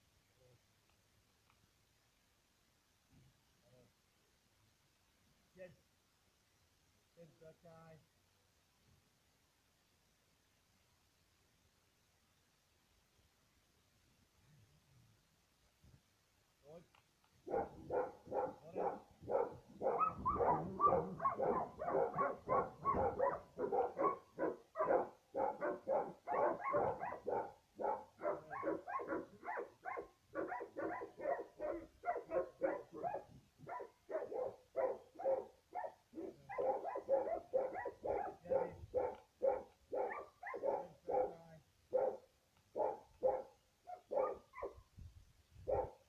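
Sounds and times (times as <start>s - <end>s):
dog barking: 17.5s - 44.8s, 45.6s - 46.0s.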